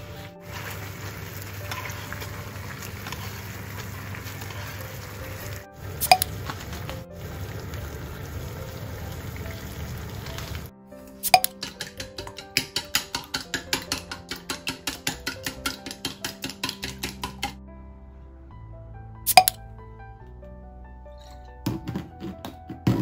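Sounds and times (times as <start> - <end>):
plucked-string background music: 0.0 - 23.0
chicken sizzling in a frying pan: 0.4 - 10.7.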